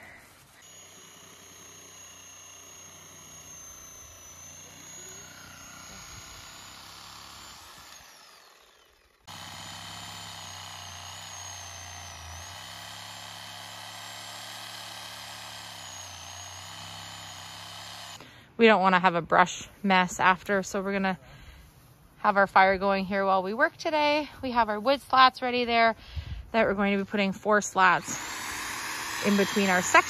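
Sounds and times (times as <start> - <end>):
cordless power saw whine: 0.0 - 18.4, 27.8 - 30.0.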